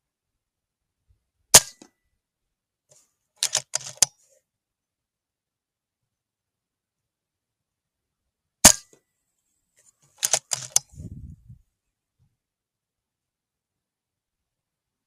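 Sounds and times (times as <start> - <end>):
quick clicks: 3.4 - 4.1, 10.2 - 11.0.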